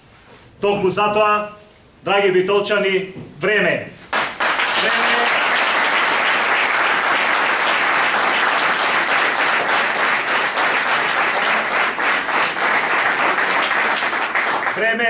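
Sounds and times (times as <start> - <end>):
people clapping: 4.1 - 15.0.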